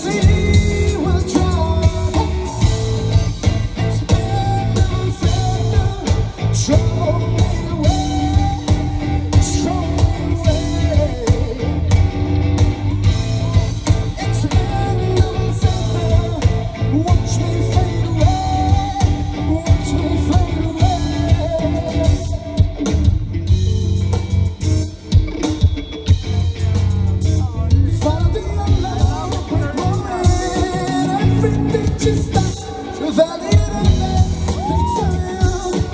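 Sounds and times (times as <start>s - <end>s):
live rock band with singer: 0.0s - 35.9s.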